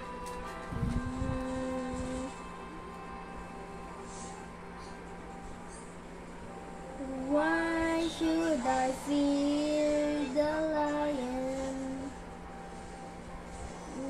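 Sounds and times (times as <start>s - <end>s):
child singing: 7.0s - 12.1s.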